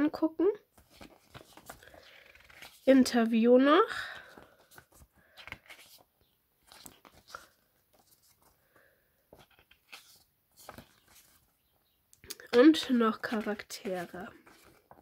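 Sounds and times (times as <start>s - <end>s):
booklet pages rustling: 0.7s - 15.0s.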